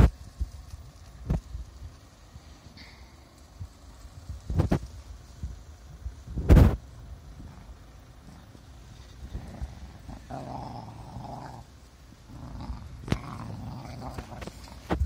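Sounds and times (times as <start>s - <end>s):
dogs play-growling: 7.4s - 15.0s.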